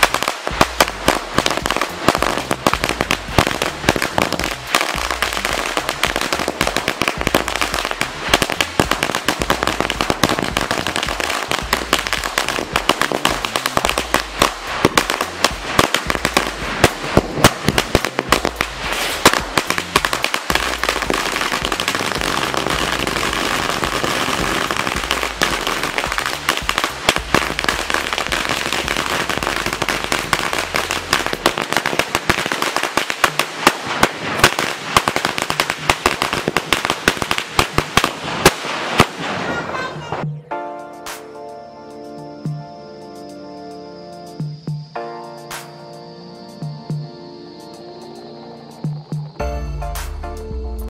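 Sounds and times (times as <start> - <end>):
string of firecrackers going off: 0.0 - 40.2.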